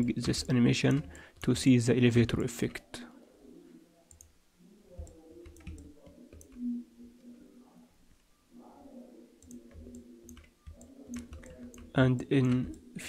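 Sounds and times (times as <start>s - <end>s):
mouse and keyboard clicks: 9.4s - 12.8s.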